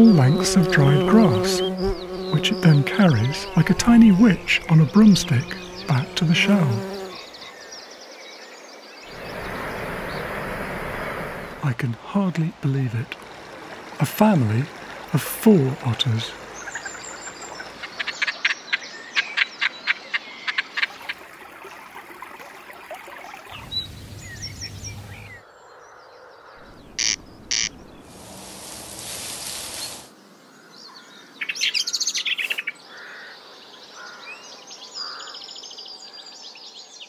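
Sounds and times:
bird calls: 0.0s - 11.6s, 15.8s - 21.2s, 23.5s - 37.0s
quick chirping calls: 0.4s - 7.3s, 26.6s - 30.1s
corncrake harsh rasps: 26.7s - 30.1s.

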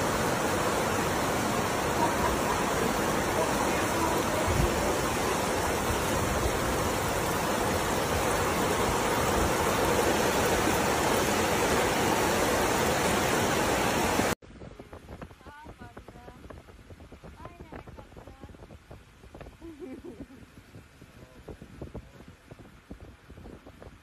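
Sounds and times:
fast-flowing floodwater: 0.0s - 14.4s
heavy rain: 0.0s - 16.0s.

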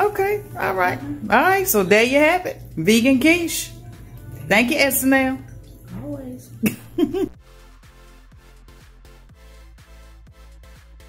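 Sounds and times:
electronic dance music: 7.4s - 11.0s.

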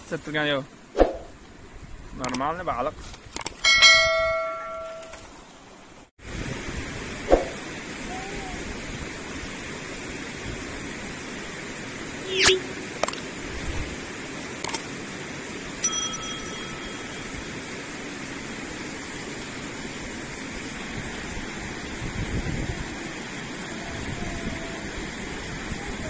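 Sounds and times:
notification bell ding: 3.7s - 5.2s, 15.8s - 17.5s
river rushing over stones: 7.2s - 26.0s.

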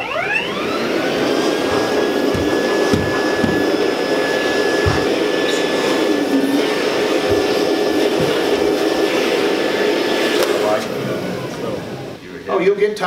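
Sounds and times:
vacuum cleaner motor running: 0.0s - 12.3s
dull knocks: 1.7s - 3.9s, 4.7s - 5.3s, 7.2s - 8.7s.

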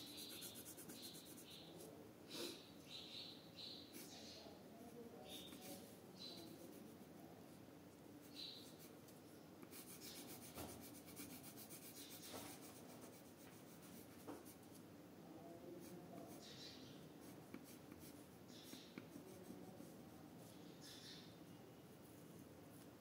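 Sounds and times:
pencil scratching on paper: 0.0s - 1.6s, 5.3s - 7.0s, 9.6s - 14.8s, 17.2s - 20.6s.

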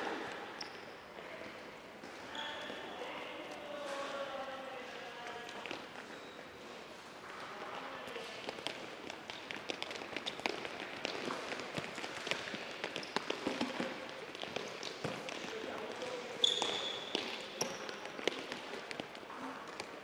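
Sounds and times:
shoes squeaking on floor: 0.2s - 1.2s, 2.1s - 3.0s, 5.8s - 6.8s, 8.8s - 20.0s
soccer balls dribbled on gym floor: 8.1s - 20.0s.

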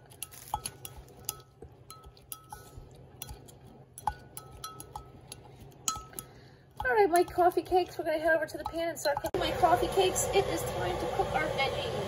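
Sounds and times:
utensil clinking against ceramic bowl: 0.0s - 9.4s.

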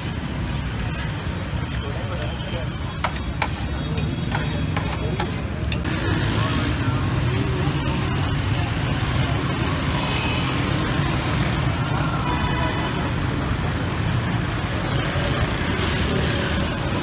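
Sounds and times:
city street traffic rumble: 0.0s - 17.0s.

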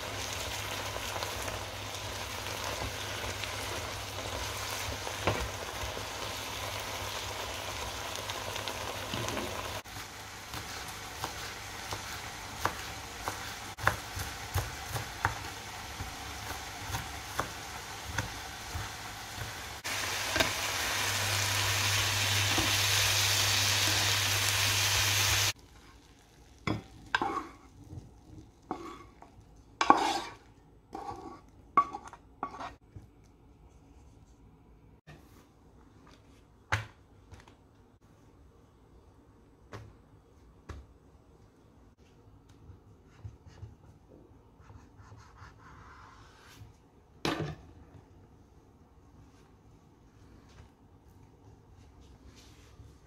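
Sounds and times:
vegetables sizzling in a pan: 0.0s - 30.4s
spatula scraping a pan: 27.1s - 27.9s, 28.6s - 32.8s.

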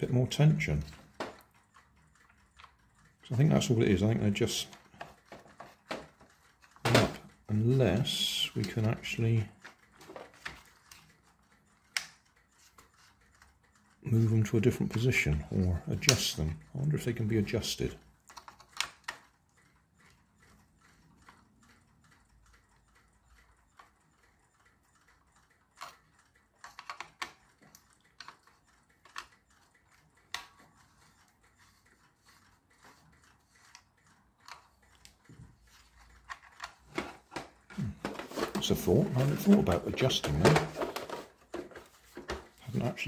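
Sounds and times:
screwdriver clicking on plastic: 26.6s - 29.5s.

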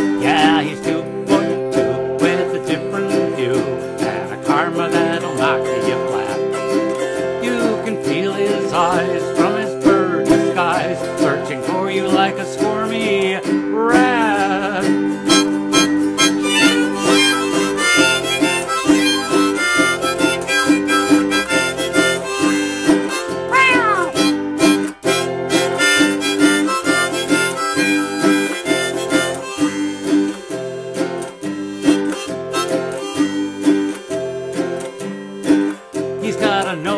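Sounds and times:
harmonica playing: 15.3s - 35.8s.

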